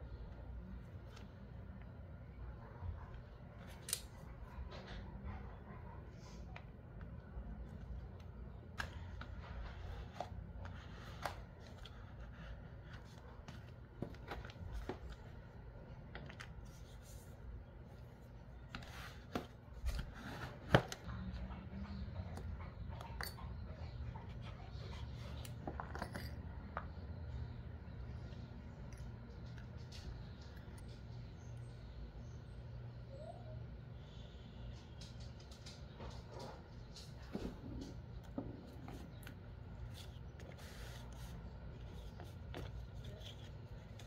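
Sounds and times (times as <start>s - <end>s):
low steady hum: 0.0s - 44.0s
hands handling paper: 6.9s - 21.4s, 38.8s - 44.0s.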